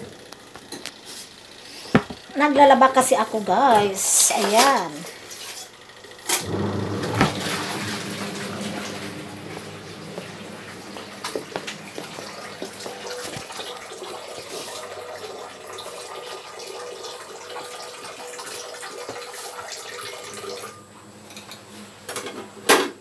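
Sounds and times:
water running: 0:06.4 - 0:20.7.

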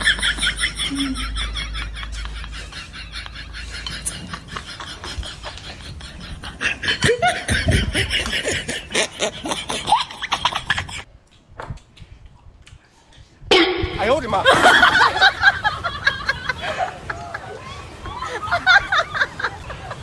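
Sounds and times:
people laughing and snickering: 0:00.0 - 0:11.1, 0:13.5 - 0:20.0.

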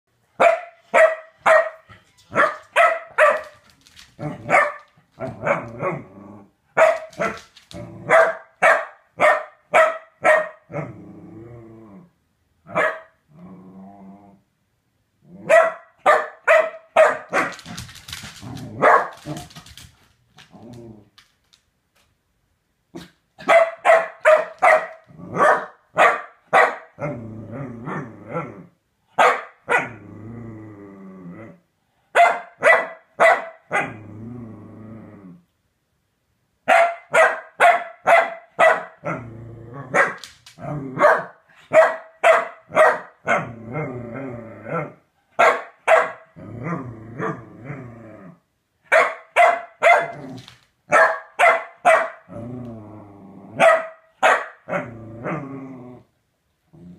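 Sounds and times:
dog barking sharply: 0:00.4 - 0:03.5, 0:04.5 - 0:05.6, 0:06.8 - 0:07.4, 0:08.1 - 0:10.6, 0:12.7 - 0:13.1, 0:15.5 - 0:17.5, 0:23.0 - 0:26.9, 0:29.2 - 0:29.9, 0:32.2 - 0:33.8, 0:36.7 - 0:39.0, 0:41.0 - 0:43.1, 0:45.4 - 0:46.2, 0:48.9 - 0:50.1, 0:50.9 - 0:52.2, 0:53.6 - 0:54.6
dog growling: 0:05.2 - 0:06.6, 0:10.7 - 0:12.2, 0:13.3 - 0:14.5, 0:20.4 - 0:21.2, 0:27.0 - 0:28.8, 0:29.8 - 0:31.6, 0:33.8 - 0:35.5, 0:39.0 - 0:41.0, 0:43.3 - 0:45.0, 0:46.4 - 0:48.4, 0:52.3 - 0:53.6, 0:54.7 - 0:56.1.

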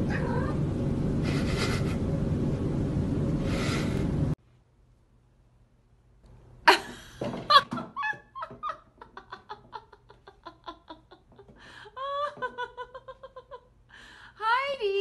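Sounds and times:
person laughing: 0:01.2 - 0:02.0, 0:06.7 - 0:13.7.

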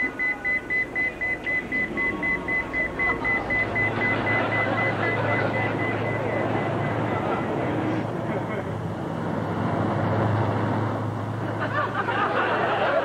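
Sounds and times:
rapid electronic beeping: 0:00.0 - 0:08.0
low steady hum: 0:00.0 - 0:08.8.

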